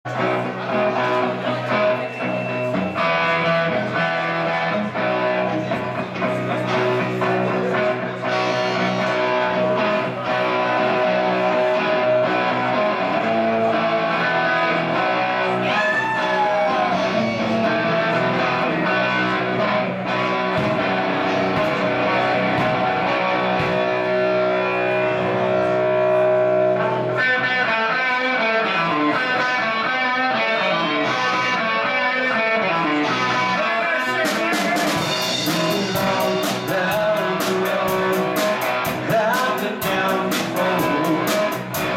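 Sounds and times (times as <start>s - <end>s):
bass guitar: 0.0s - 41.9s
drums: 0.0s - 41.9s
electric guitars: 0.0s - 41.9s.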